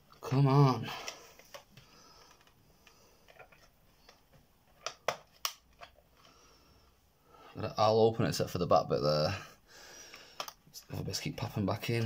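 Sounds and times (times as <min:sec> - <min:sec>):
sharp plastic clicks: 0:10.2 - 0:10.6.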